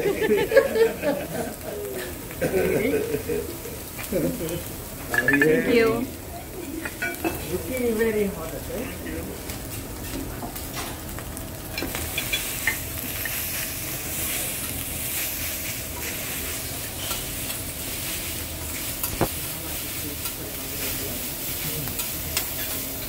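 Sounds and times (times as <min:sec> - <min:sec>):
food sizzling on a griddle: 0:00.0 - 0:23.0
metal spatula clicking on hot plate: 0:21.9 - 0:22.8.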